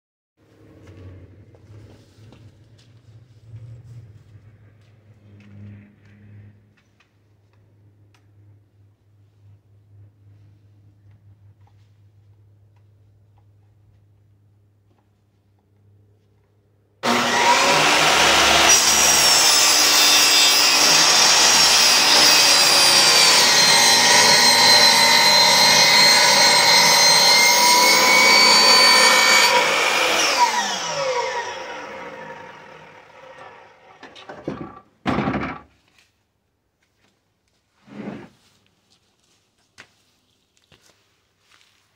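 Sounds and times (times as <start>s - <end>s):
miter saw cutting wood: 17.0s - 34.2s.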